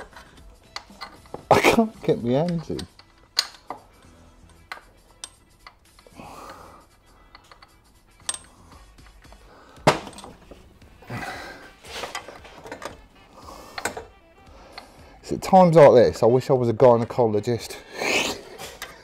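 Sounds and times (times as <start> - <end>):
metal clinks and knocks: 0.0 - 6.1, 7.2 - 10.8, 12.0 - 13.1.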